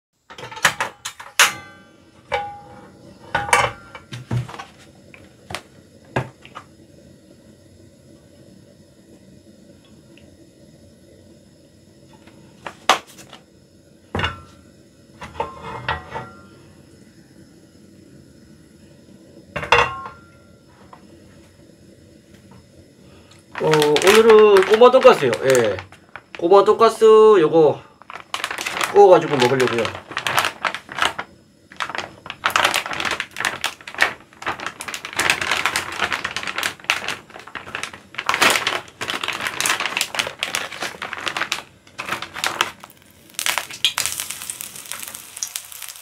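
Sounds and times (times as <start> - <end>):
faint steady hum: 0.3 - 46.0.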